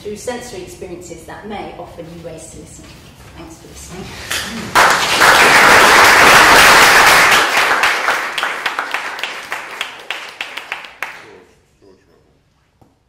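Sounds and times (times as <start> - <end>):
audience applauding: 4.3 - 11.4.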